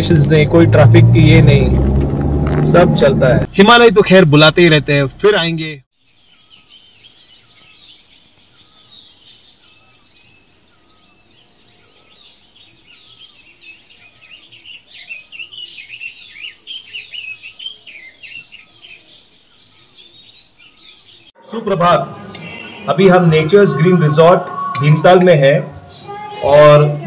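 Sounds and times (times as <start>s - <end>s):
birds chirping and calling: 6.0s - 27.0s.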